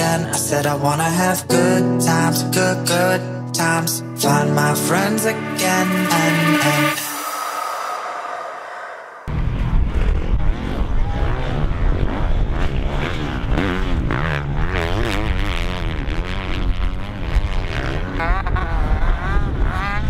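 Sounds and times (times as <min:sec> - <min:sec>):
motocross bike engines revving: 0:10.5 - 0:20.0.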